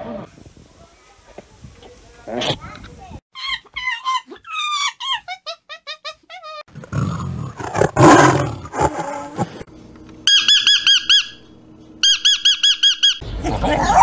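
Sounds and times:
rapid repeated chirping: 10.3s - 13.2s.

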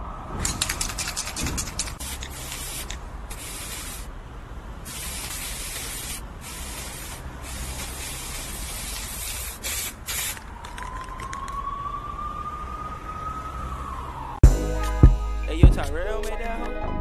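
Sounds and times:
sharp clicks: 0.4s - 3.0s
spray can hissing: 0.4s - 4.1s, 4.9s - 10.5s.

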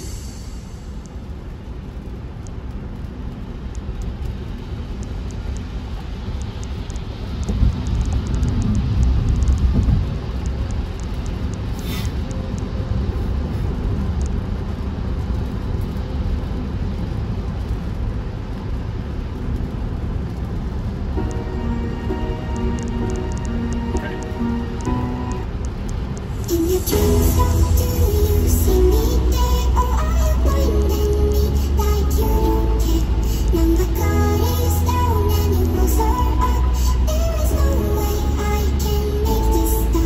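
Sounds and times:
road and tyre rumble: 0.0s - 40.0s
light ticks: 1.0s - 12.7s, 14.1s - 16.0s, 22.1s - 31.2s.

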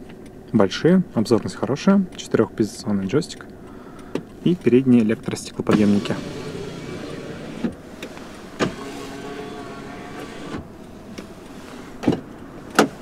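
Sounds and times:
electric window motor humming: 5.7s - 10.7s.

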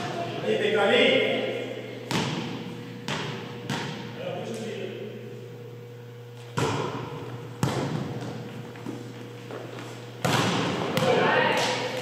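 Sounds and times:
steady low hum: 0.0s - 12.0s
volleyball slaps echoing: 2.0s - 4.8s, 6.4s - 9.0s, 10.1s - 12.0s.

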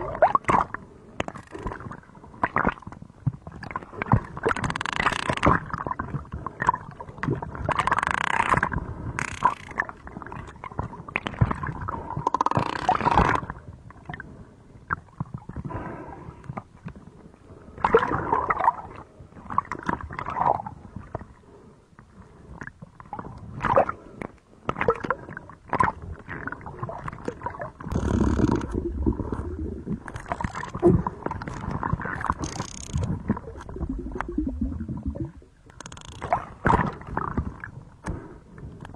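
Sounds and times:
low rumble of bubbles: 0.0s - 4.6s, 5.4s - 8.0s, 9.8s - 21.4s, 22.0s - 38.9s
underwater bubbling and gurgling: 0.0s - 38.9s
sharp clicks and knocks: 35.7s - 36.4s.

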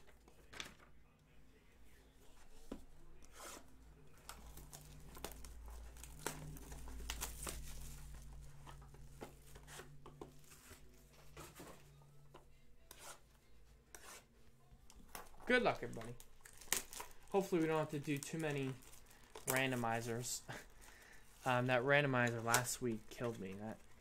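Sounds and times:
plastic shrink wrap tearing: 4.2s - 8.4s, 15.5s - 20.3s.

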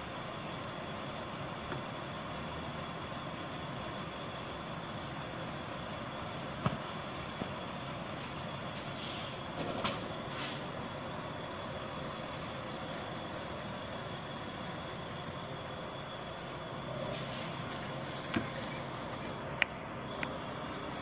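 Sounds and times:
truck engine running: 0.0s - 21.0s
air brake hisses: 8.8s - 10.8s, 17.0s - 18.9s.

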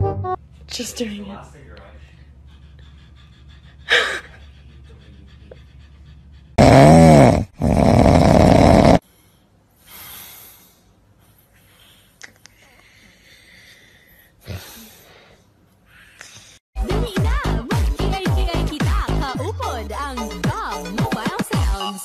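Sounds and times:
faint breathing: 9.0s - 16.7s.

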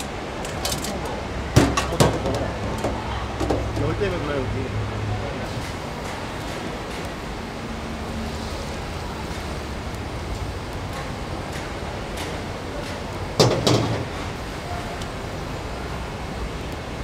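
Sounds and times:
wok and ladle clanking: 0.0s - 4.0s, 13.4s - 14.2s
gas burner rushing: 0.0s - 4.8s, 5.4s - 17.0s.

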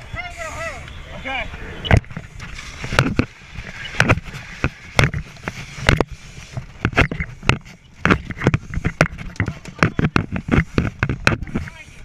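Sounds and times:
gear knocking and thudding: 1.9s - 11.8s.

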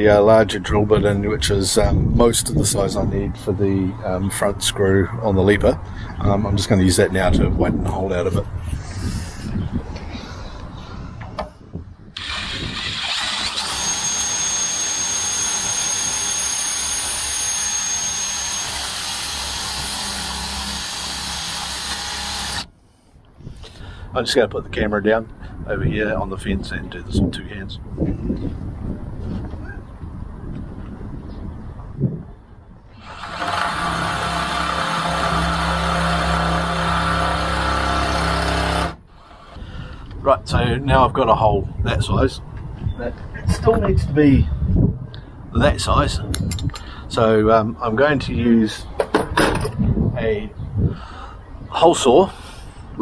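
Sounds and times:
drill cutting sheet metal: 12.2s - 22.7s, 33.0s - 39.6s.

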